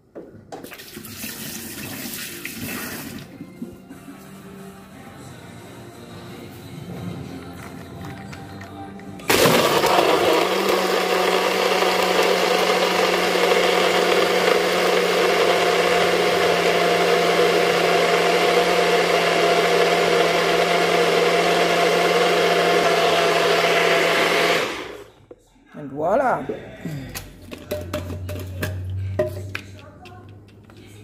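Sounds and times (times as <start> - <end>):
blender motor running: 9.3 - 25.1.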